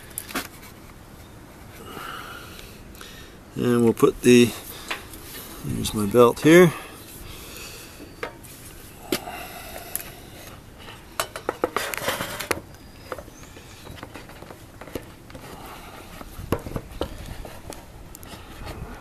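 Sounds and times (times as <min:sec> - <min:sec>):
rustling clatter: 0:10.5 - 0:18.8.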